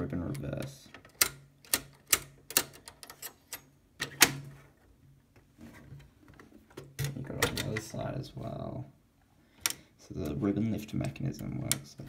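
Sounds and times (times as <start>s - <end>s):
typewriter mechanism clicking: 0.3s - 4.4s.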